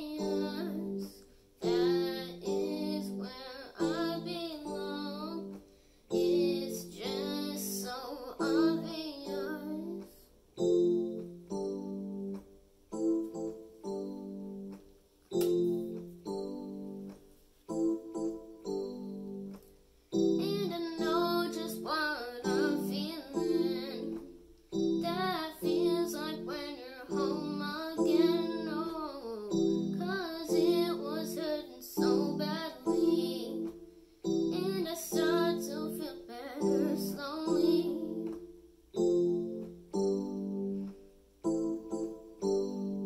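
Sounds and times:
boy singing: 0:00.0 - 0:10.2, 0:20.4 - 0:24.3, 0:25.0 - 0:33.8, 0:34.5 - 0:38.4
keyboard piano chords: 0:00.0 - 0:43.0.

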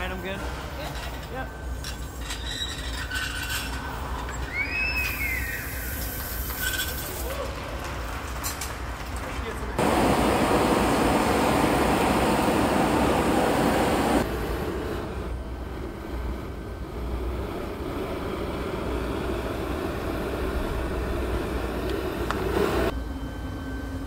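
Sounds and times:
torch flame hissing: 0:03.8 - 0:07.5, 0:09.8 - 0:23.0
burners low rumble: 0:09.4 - 0:22.9.

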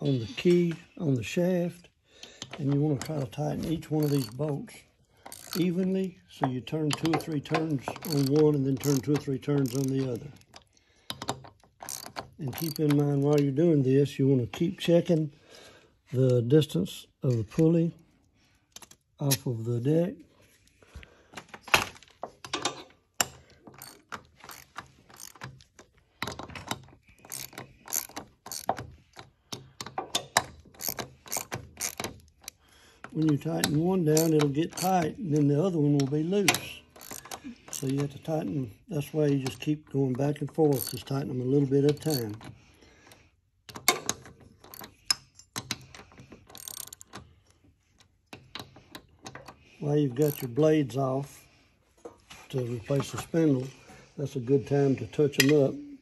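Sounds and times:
ratchet wrench clicking: 0:02.4 - 0:04.4, 0:05.2 - 0:05.8, 0:06.9 - 0:13.4, 0:23.2 - 0:35.1, 0:36.6 - 0:38.0, 0:40.7 - 0:41.1, 0:43.7 - 0:47.2, 0:50.2 - 0:50.5.

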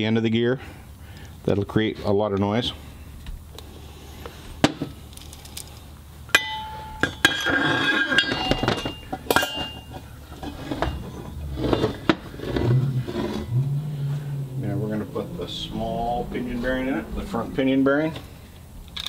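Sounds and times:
metal parts clinking on workbench: 0:06.4 - 0:11.0.

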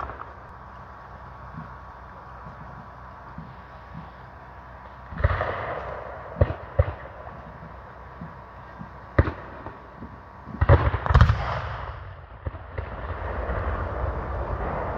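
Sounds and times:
blank gunshots: 0:10.6 - 0:11.9.

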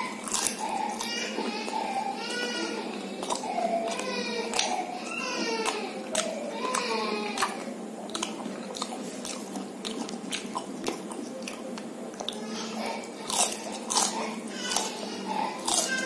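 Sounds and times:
person chewing crunchy food: 0:00.0 - 0:16.0.

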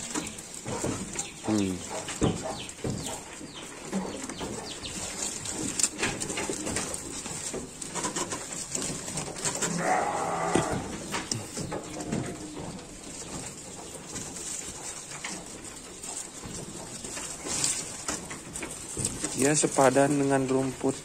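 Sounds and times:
dry leaves crackling: 0:00.0 - 0:21.0
sheep munching leaves: 0:00.0 - 0:21.0
low animal call: 0:09.6 - 0:12.8.

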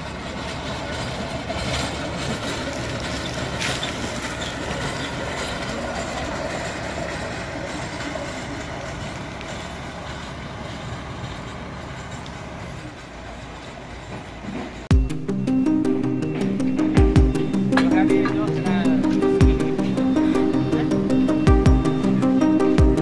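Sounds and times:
steel wheels rolling on rails: 0:00.0 - 0:14.9.

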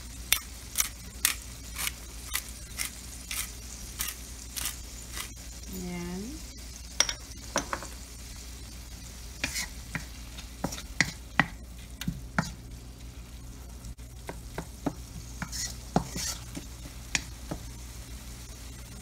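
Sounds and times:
meat sizzling: 0:00.0 - 0:19.0
wooden spatula scraping a wok: 0:09.4 - 0:12.6, 0:15.1 - 0:17.3.

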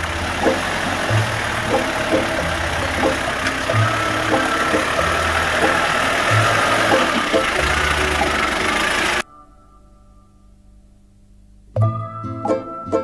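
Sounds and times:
tyres crawling over stony track: 0:00.0 - 0:09.2
vehicle engine running at low speed: 0:00.0 - 0:09.2.

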